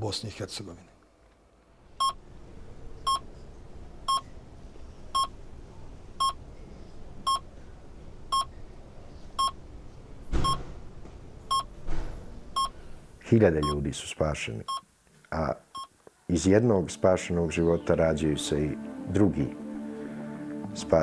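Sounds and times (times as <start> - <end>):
patient monitor beeping: 2.0 - 2.2, 3.1 - 3.3, 5.2 - 5.4, 6.2 - 6.4, 8.3 - 8.5, 9.4 - 9.6, 11.5 - 11.8, 12.6 - 12.8, 13.6 - 13.8, 15.7 - 15.9.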